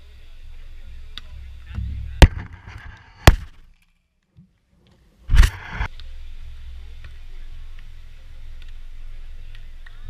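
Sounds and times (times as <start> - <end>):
ball hitting camera: 1.2 - 3.7, 5.3 - 5.9
knocking and scraping: 1.7 - 3.6.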